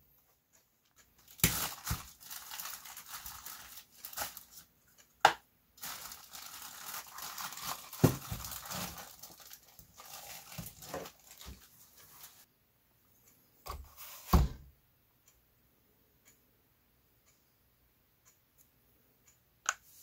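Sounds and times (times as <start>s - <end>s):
plastic bag crinkling: 1.2s - 4.7s, 5.8s - 12.5s.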